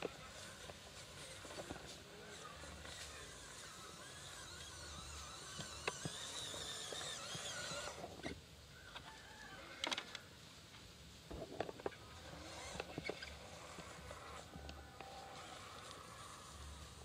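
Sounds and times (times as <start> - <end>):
electric motor whining: 0.0 - 8.4, 11.9 - 17.0.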